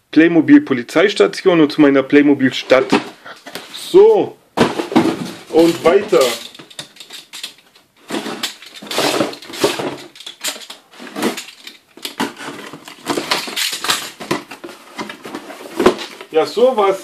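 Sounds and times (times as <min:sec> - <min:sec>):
cardboard scraping and rustling: 0:02.7 - 0:03.8, 0:04.6 - 0:07.4, 0:08.0 - 0:16.8.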